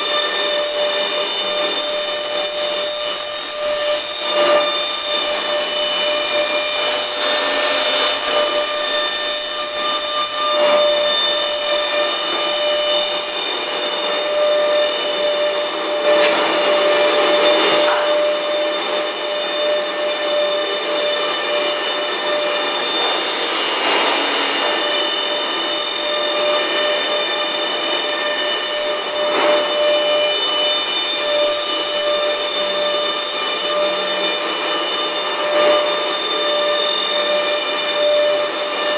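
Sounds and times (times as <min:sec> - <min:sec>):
high-pitched spindle whine: 0:00.0 - 0:38.9
hiss of cutting and suction: 0:12.2 - 0:26.4.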